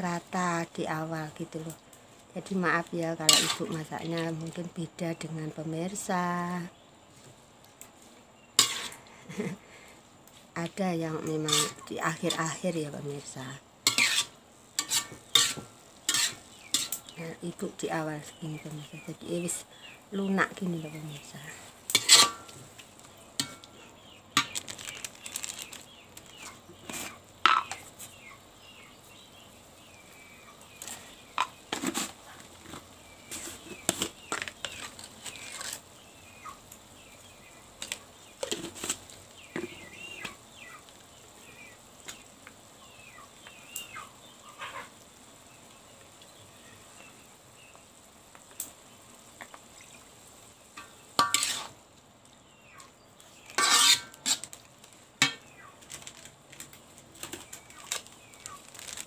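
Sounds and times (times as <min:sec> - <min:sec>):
soft sizzle: 0:00.0 - 0:59.0
utensil scraping in a pan: 0:02.4 - 0:04.6, 0:07.1 - 0:09.6, 0:10.3 - 0:19.6, 0:20.2 - 0:28.2, 0:30.7 - 0:36.1, 0:37.8 - 0:40.4, 0:50.8 - 0:51.8, 0:52.8 - 0:59.0.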